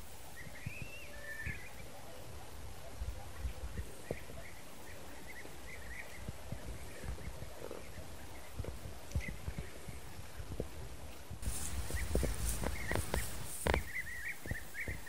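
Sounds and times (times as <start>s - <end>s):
wind rumbling on microphone: 0.0s - 15.0s
small birds chirping: 0.1s - 10.7s, 11.4s - 15.0s
footsteps through dry stubble: 11.4s - 15.0s.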